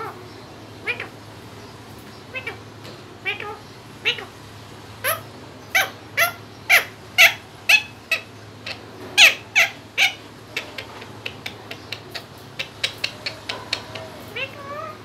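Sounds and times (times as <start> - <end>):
parakeet squawking: 0.8 - 1.2, 2.3 - 2.6, 3.2 - 4.4, 5.0 - 15.0
parakeet clicking calls: 5.0 - 15.0.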